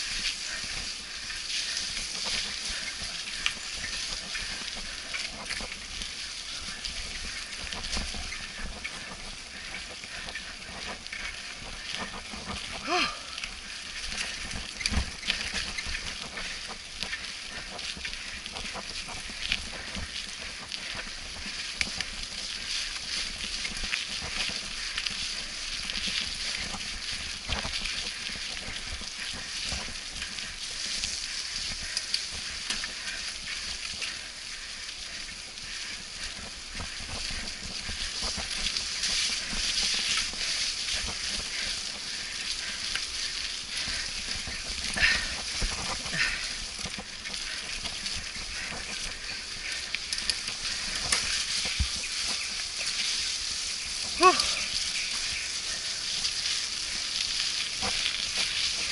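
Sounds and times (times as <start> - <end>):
bicycle tyres on wet trail: 0.0 - 58.9.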